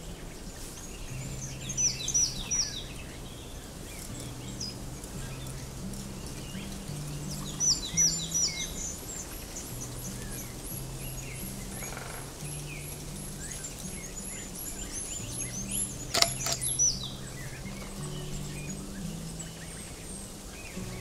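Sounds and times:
songbird singing high notes: 4.1 - 20.1.

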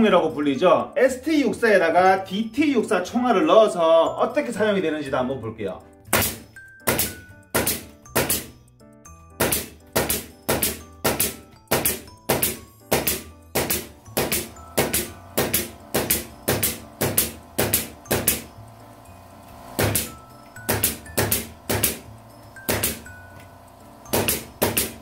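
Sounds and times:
nail gun firing bangs: 6.1 - 8.5, 9.4 - 18.5, 19.8 - 20.1, 20.7 - 22.0, 22.7 - 23.0, 24.1 - 25.0.

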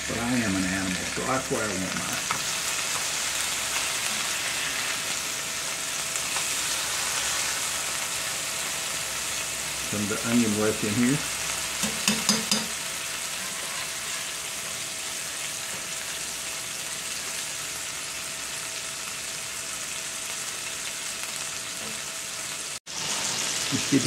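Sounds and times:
burger patties sizzling: 0.0 - 24.0
metal spatula clicking on pan: 11.8 - 12.7.

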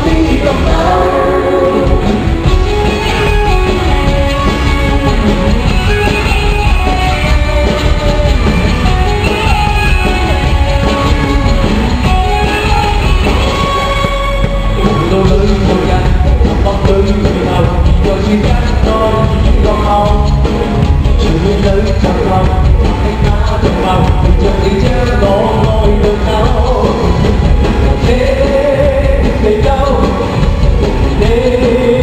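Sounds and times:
man singing: 0.0 - 2.4, 14.8 - 32.0
live band playing pop music: 0.0 - 32.0.

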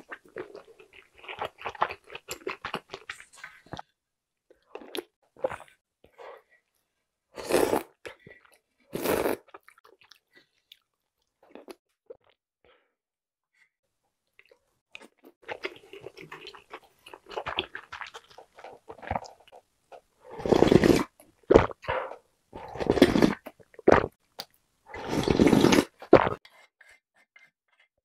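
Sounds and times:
chewing: 0.0 - 3.8, 14.4 - 20.1
slurping soup: 7.4 - 8.0, 8.9 - 9.8, 15.5 - 24.2, 24.9 - 26.6.

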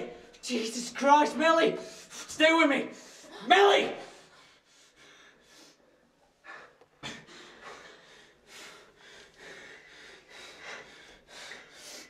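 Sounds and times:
person breathing hard: 3.0 - 12.0.

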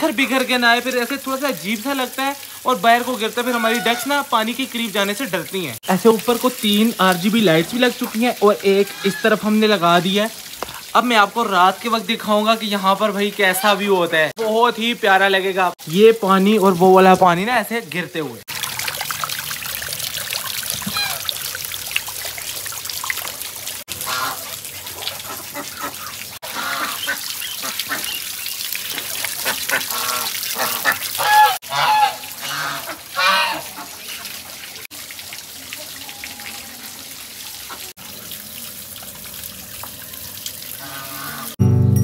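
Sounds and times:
garden waterfall splashing: 0.0 - 41.6
ducks quacking: 3.4 - 4.3, 8.7 - 9.6, 24.0 - 28.3, 29.4 - 34.3, 40.8 - 41.6.

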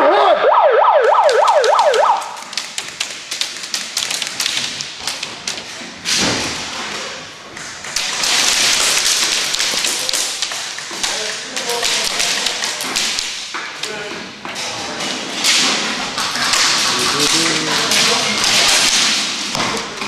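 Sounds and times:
pellets hitting wooden walls: 1.2 - 13.7.

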